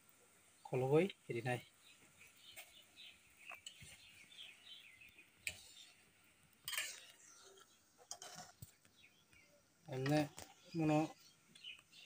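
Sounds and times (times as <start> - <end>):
ladle scraping metal pot: 6.6 - 8.6.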